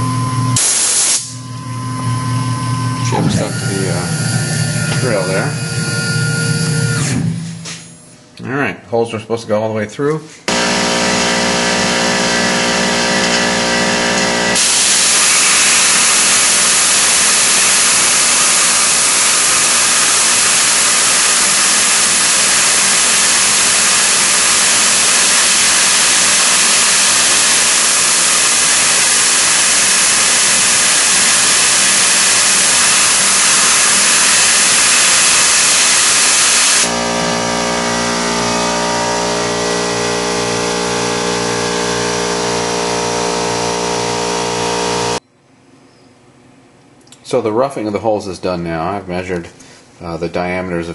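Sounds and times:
mill humming with tones: 0.0 - 8.5, 10.4 - 46.1
loud spray hiss: 0.6 - 1.4, 10.5 - 37.1.

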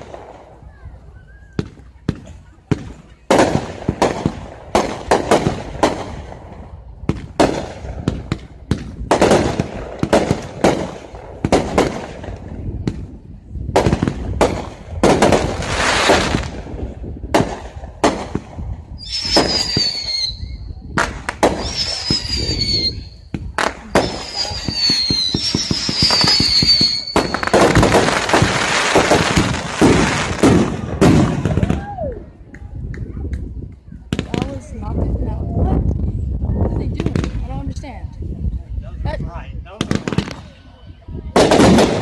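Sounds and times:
shrill fireworks whistles: 0.0 - 2.0, 18.9 - 32.2
fireworks bangs and crackling: 0.0 - 42.0.

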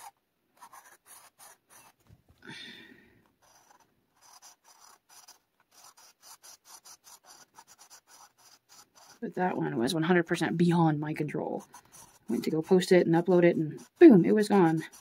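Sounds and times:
marker squeak: 0.0 - 2.0
marker scratching on paper: 0.0 - 2.1, 3.4 - 15.0.

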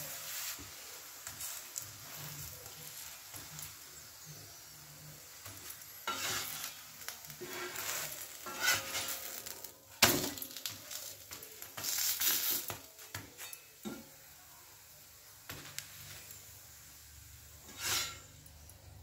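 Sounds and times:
spatula scraping a pan: 0.0 - 14.2, 17.5 - 18.7
bread sizzling: 0.0 - 19.0
spatula clanking against pan: 8.4 - 9.3.

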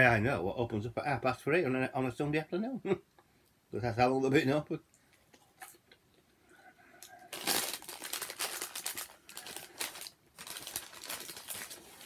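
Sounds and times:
paper bag rustling: 7.3 - 12.0.

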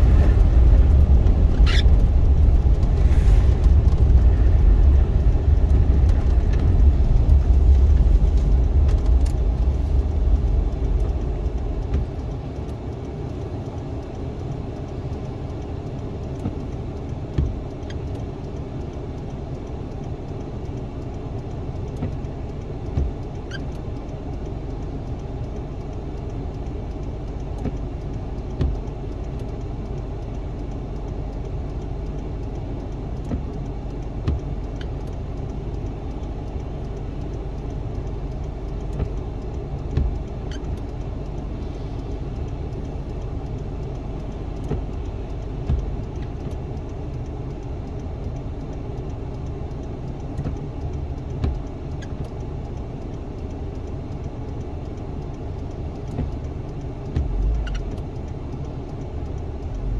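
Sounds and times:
windscreen wiper thumps: 0.0 - 12.5, 16.4 - 16.7, 17.3 - 17.7, 22.0 - 22.2, 22.9 - 23.6, 27.6 - 27.8, 28.6 - 28.9, 33.2 - 33.5, 34.2 - 34.9, 38.9 - 40.9, 44.6 - 46.6, 51.4 - 52.3, 56.0 - 56.4, 57.1 - 58.1
car rumbling over snowy road: 0.0 - 14.4, 55.7 - 58.2
car engine idling: 0.0 - 59.9.

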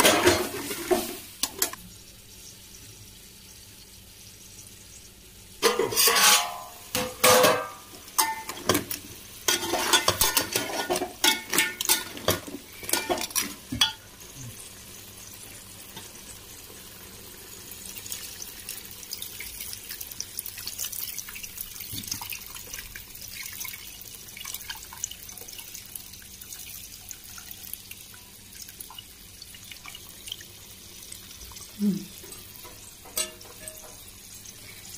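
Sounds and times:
metal pot lid clanking and scraping: 0.0 - 1.8, 5.6 - 14.0, 32.2 - 34.1
faint steady hiss: 0.0 - 34.9
water dripping: 17.9 - 34.8.

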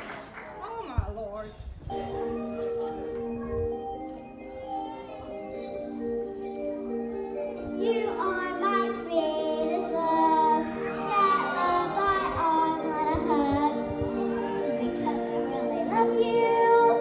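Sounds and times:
instrumental music: 1.9 - 17.0
girl singing: 7.2 - 17.0.

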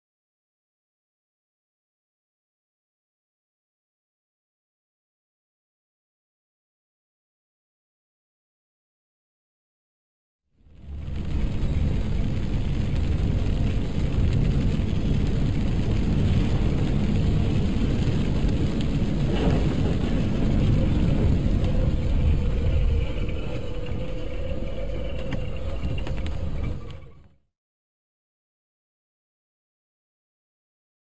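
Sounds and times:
rain on windscreen: 10.6 - 27.2
tyres and engine rumble: 10.8 - 27.3
windscreen wiper: 11.0 - 27.0.

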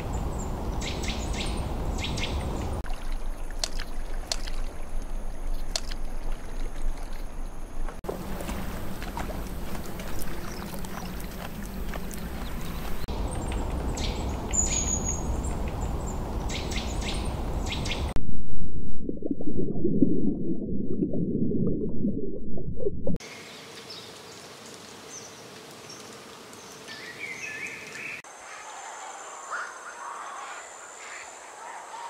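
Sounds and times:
birds chirping: 0.0 - 3.4, 9.5 - 18.2
steady outdoor hiss: 0.0 - 18.1, 23.2 - 32.0
muffled underwater water rush: 0.0 - 23.2.

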